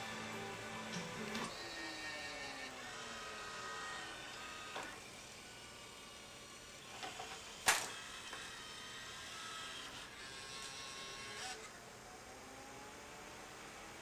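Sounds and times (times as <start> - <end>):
disc player motor whine: 0.0 - 14.0.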